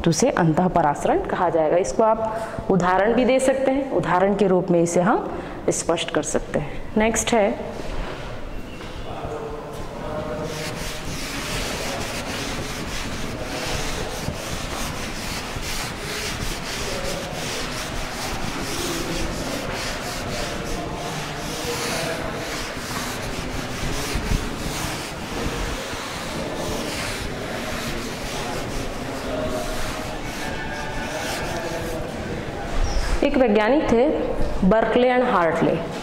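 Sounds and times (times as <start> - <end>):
eraser rubbing on blackboard: 10.2 - 32.1.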